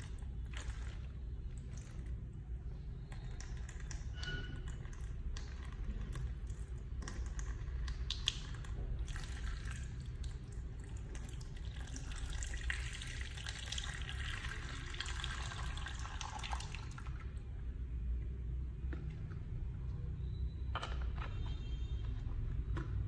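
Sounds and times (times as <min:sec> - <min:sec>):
water pouring into a tub: 0:00.0 - 0:02.2, 0:02.9 - 0:17.4.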